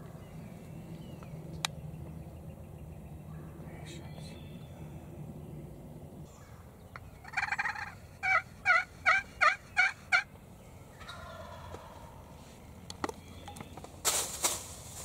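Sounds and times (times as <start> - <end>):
wild turkey calling: 6.2 - 13.9.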